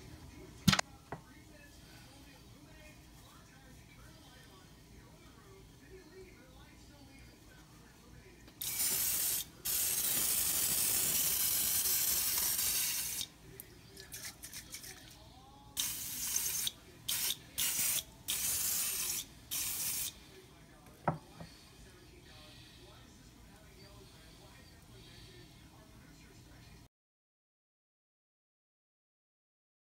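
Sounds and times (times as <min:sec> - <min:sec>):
spray can hissing: 0:08.6 - 0:13.3, 0:15.8 - 0:20.2.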